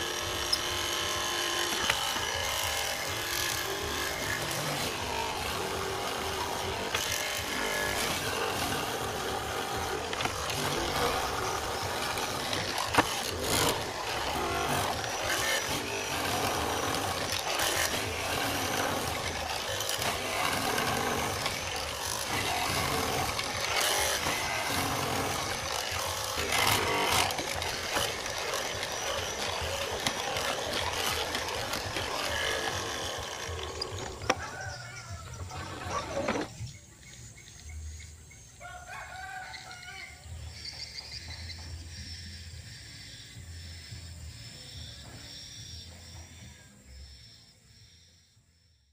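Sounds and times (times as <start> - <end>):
mortising machine running: 0.0 - 36.7.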